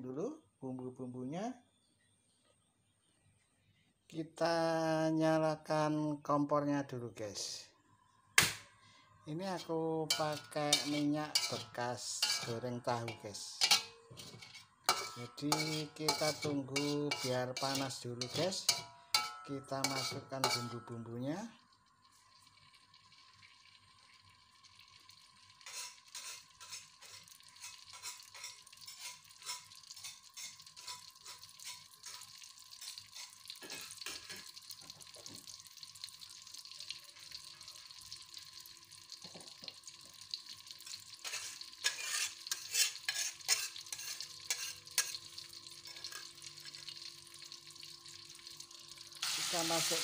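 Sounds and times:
spice paste sizzling in oil: 0:09.4 - 0:50.0.

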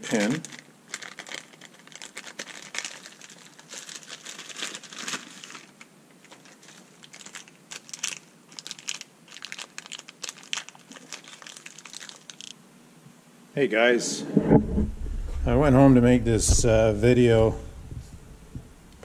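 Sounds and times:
plastic bag crinkling: 0:00.0 - 0:12.6.

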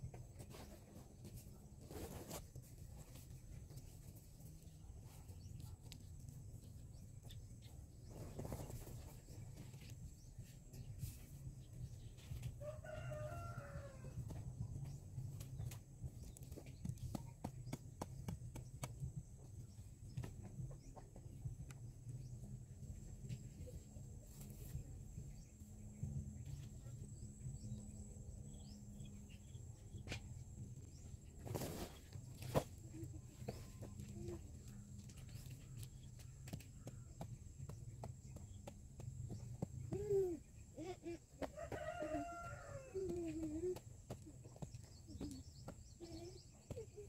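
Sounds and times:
rooster crowing: 0:12.6 - 0:14.1, 0:41.5 - 0:43.1.

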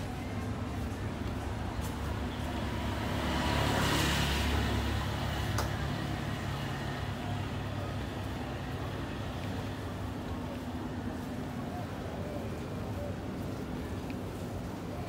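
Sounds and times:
low rumble of traffic: 0:00.0 - 0:15.0
motor scooter passing: 0:02.1 - 0:09.7.

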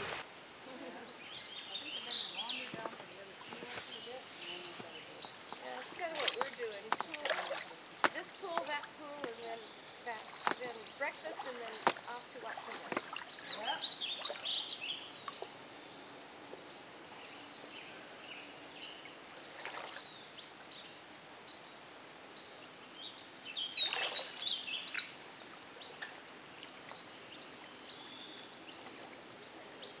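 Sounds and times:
small birds chirping: 0:00.0 - 0:30.0
water splashing from swimming: 0:05.6 - 0:09.5, 0:10.1 - 0:14.6, 0:19.4 - 0:20.1, 0:23.8 - 0:25.1.

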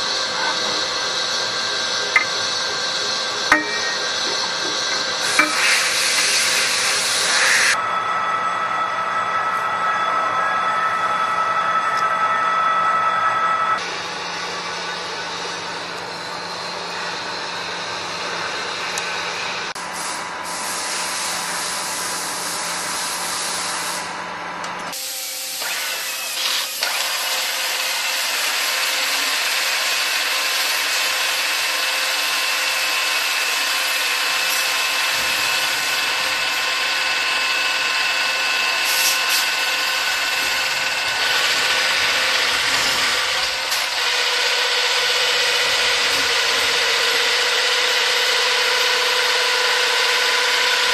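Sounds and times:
low machine hum: 0:00.0 - 0:19.8
metal cutting with high whine: 0:00.0 - 0:19.8, 0:24.9 - 0:50.9.

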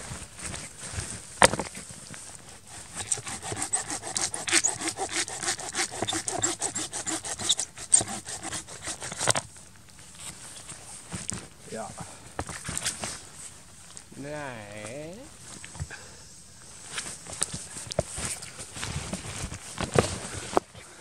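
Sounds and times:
hand saw cutting log: 0:02.5 - 0:09.5.

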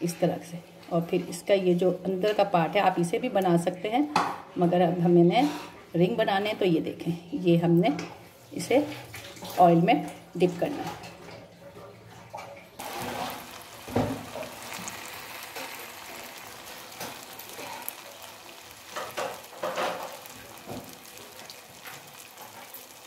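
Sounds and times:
dough sizzling in hot oil: 0:12.8 - 0:23.0.

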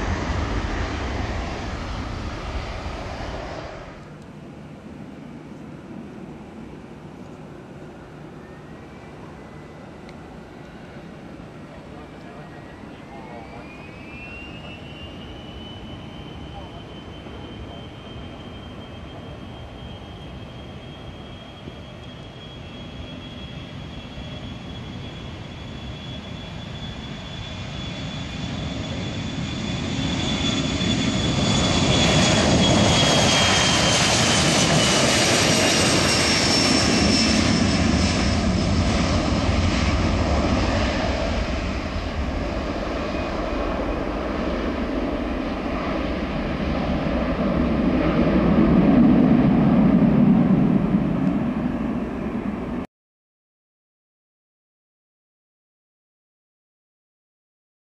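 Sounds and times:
high fan whine: 0:00.0 - 0:23.7
jet engines at takeoff power: 0:00.0 - 0:52.9.

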